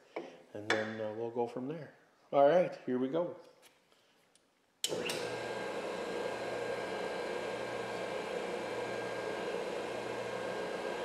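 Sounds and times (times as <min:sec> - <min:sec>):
grinder motor humming: 0:04.9 - 0:11.0.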